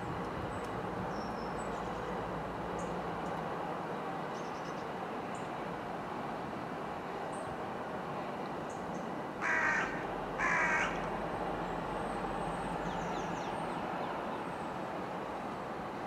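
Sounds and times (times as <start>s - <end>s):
diesel locomotive rumbling: 8.3s - 16.0s
crow cawing: 9.4s - 11.1s.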